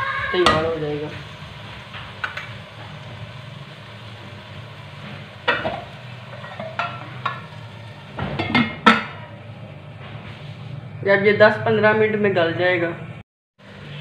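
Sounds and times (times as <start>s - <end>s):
gravy sizzling faintly: 0.0s - 11.9s
metal pot lid clinking: 5.4s - 7.6s.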